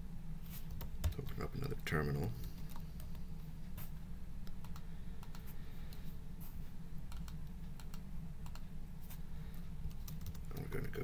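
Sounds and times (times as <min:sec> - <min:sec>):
steady low hum: 0:00.0 - 0:11.0
keyboard and mouse clicking: 0:04.4 - 0:06.0, 0:07.1 - 0:08.7, 0:09.8 - 0:10.7.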